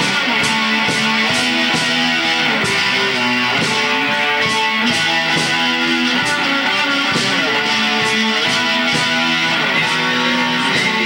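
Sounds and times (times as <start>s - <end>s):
drums: 0.0s - 11.0s
electric guitars playing chords: 0.0s - 11.0s.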